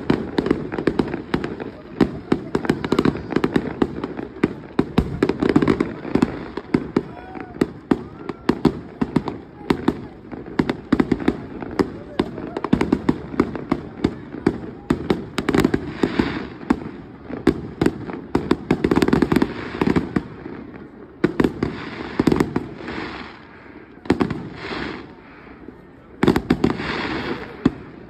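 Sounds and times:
fireworks crackling: 0.0s - 28.0s.

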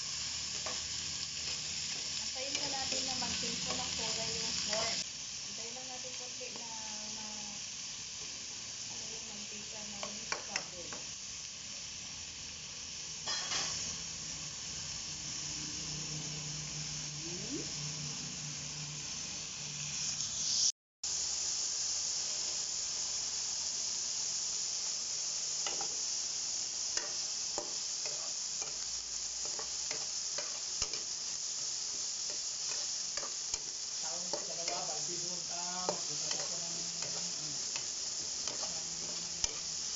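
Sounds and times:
meat sizzling in hot oil: 0.0s - 39.9s
spatula scraping a pan: 27.0s - 39.9s.

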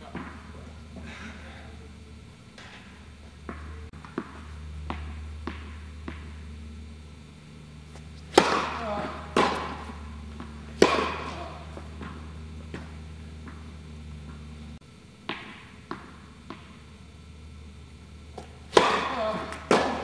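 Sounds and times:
low hum: 0.0s - 20.0s
tennis ball bouncing: 0.1s - 0.4s, 2.6s - 6.8s, 7.9s - 16.9s, 18.3s - 20.0s
racket striking ball echoing: 3.4s - 6.9s, 7.8s - 16.9s, 18.3s - 20.0s.

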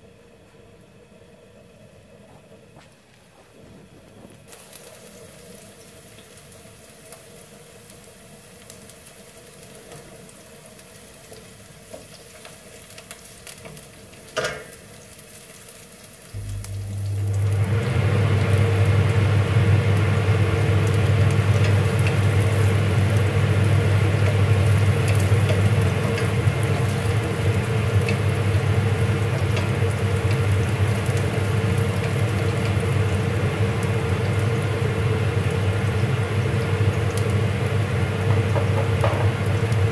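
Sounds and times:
vegetables frying in oil: 3.5s - 39.9s
loud low hum with rushing: 16.4s - 26.6s
wooden spatula stirring pan: 21.5s - 28.6s.

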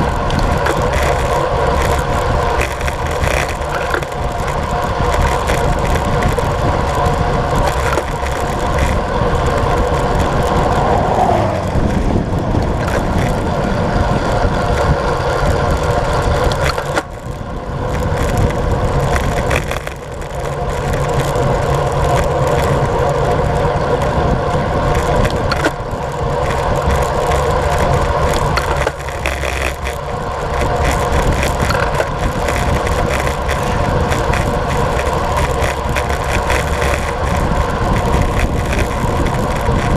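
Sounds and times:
bike tyre noise on road: 0.0s - 39.9s
wind rushing over microphone: 0.0s - 39.9s.

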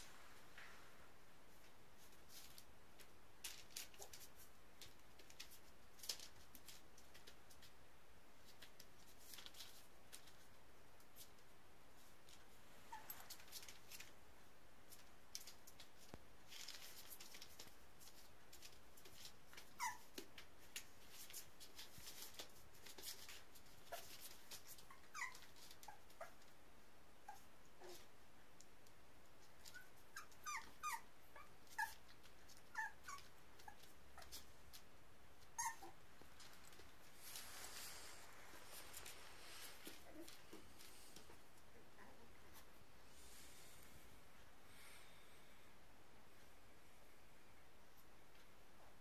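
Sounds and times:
puppy squeaking: 19.8s - 20.1s, 24.8s - 26.3s, 29.7s - 32.0s, 32.7s - 34.4s, 35.6s - 36.0s.

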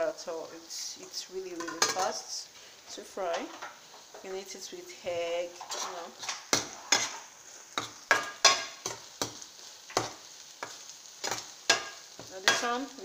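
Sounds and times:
light sizzle of frying: 0.0s - 13.0s
metal utensil scraping frying pan: 1.6s - 2.2s, 5.5s - 13.0s.

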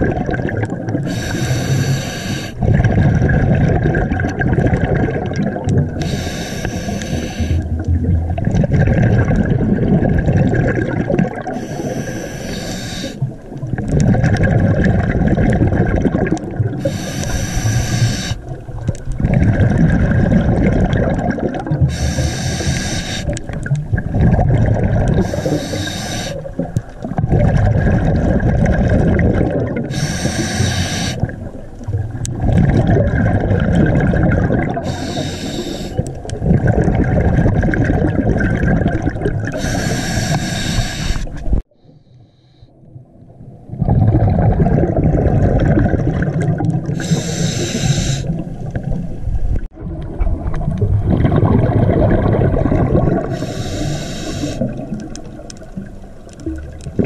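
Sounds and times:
exhaled bubbles rumbling: 0.0s - 41.6s, 42.9s - 57.0s
regulator inhalation hiss: 1.1s - 2.6s, 6.0s - 7.6s, 11.6s - 13.2s, 16.8s - 18.4s, 21.9s - 23.4s, 25.2s - 26.4s, 29.9s - 31.2s, 34.8s - 36.0s, 39.6s - 41.3s, 47.0s - 48.3s, 53.3s - 54.7s.

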